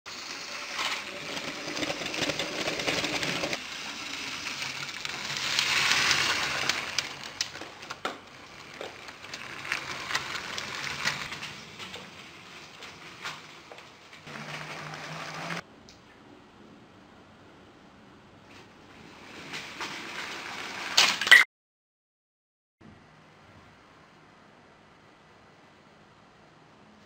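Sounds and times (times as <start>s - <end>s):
toy train motor whirring: 0.1s - 15.6s
wheels clicking over rail joints: 0.1s - 15.6s, 19.1s - 21.3s.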